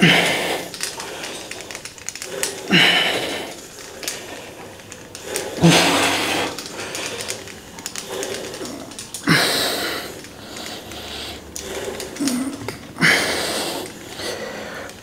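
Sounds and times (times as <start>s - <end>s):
person exhaling hard with grunts: 0.0s - 0.8s, 2.6s - 3.6s, 5.2s - 7.4s, 8.0s - 10.2s, 11.4s - 14.8s.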